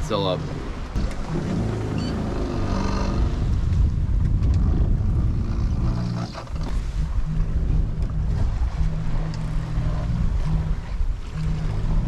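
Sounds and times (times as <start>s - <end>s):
water rushing past hull: 0.0s - 12.0s
wind buffeting microphone: 0.0s - 12.0s
low steady hum: 1.0s - 12.0s.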